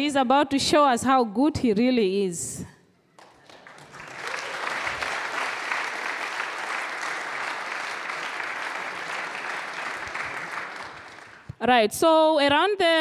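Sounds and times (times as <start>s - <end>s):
audience applauding: 3.2s - 11.5s.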